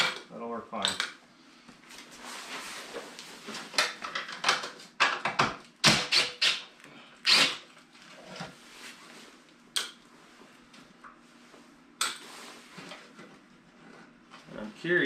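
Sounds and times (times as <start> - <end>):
cordless drill bursts: 7.2 - 7.6.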